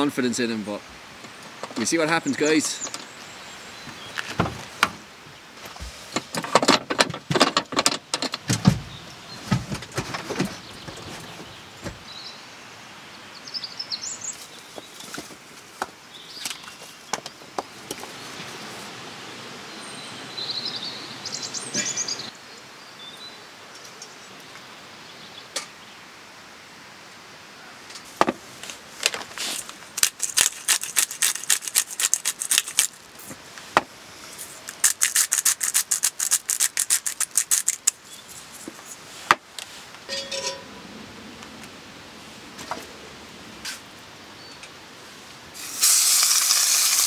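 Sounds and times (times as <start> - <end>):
birds chirping: 0.0 - 6.3, 8.4 - 15.2, 16.0 - 26.0
small stream rushing: 0.0 - 6.4, 15.4 - 30.0, 37.9 - 47.0
van door and gear clattering: 6.2 - 12.0.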